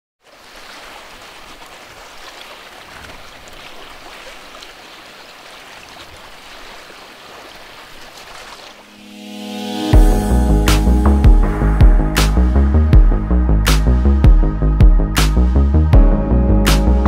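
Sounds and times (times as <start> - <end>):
small waves lapping: 0.2 - 9.2.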